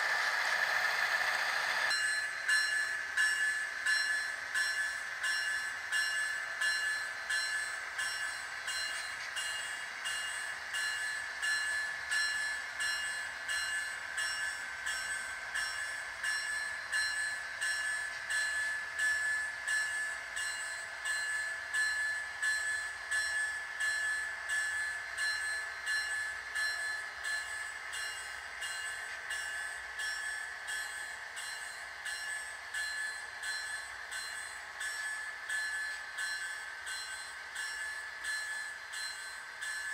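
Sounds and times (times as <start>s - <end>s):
model train whining and clicking: 0.0s - 39.9s.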